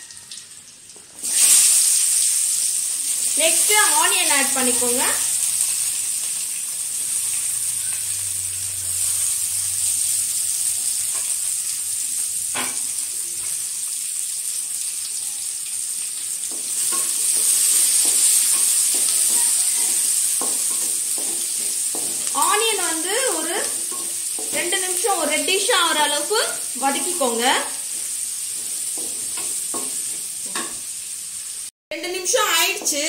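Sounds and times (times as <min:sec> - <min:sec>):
onions sizzling in oil: 0:00.0 - 0:33.0
spatula scraping pan: 0:16.4 - 0:30.9.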